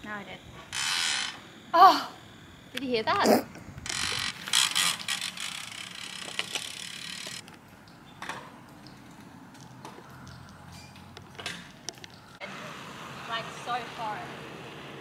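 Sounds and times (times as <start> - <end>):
bicycle freehub ratchet clicking: 0.8 - 1.4, 3.8 - 7.4.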